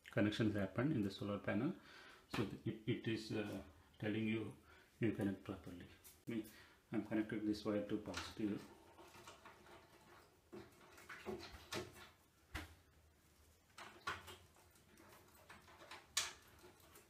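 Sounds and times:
cable clicks and rustles: 7.9 - 17.0.

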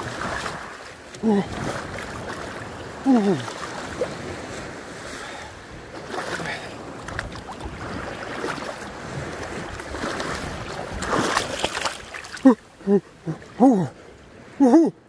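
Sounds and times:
small waves washing on shore: 0.0 - 15.0
wind on microphone: 1.3 - 11.9.

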